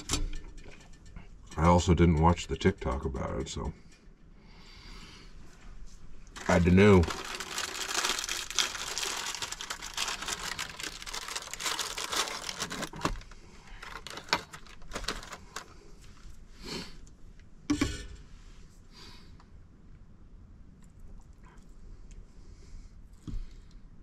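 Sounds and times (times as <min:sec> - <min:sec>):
plastic wrapper crinkling: 0:06.3 - 0:15.8.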